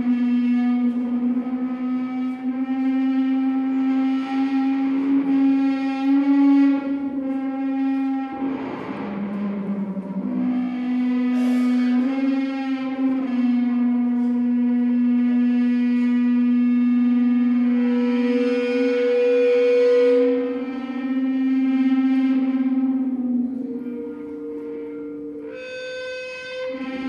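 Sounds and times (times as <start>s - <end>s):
droning drum tone: 7.4s - 14.6s.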